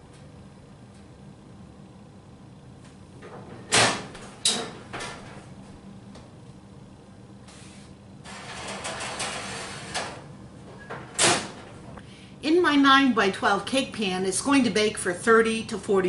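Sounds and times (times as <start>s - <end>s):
oven door clanking open: 3.2s - 5.5s, 8.3s - 11.9s.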